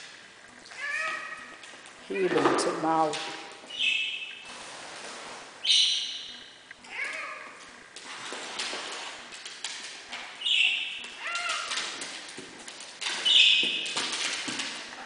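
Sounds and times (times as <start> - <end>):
paws tapping on wooden floor: 7.1 - 15.0.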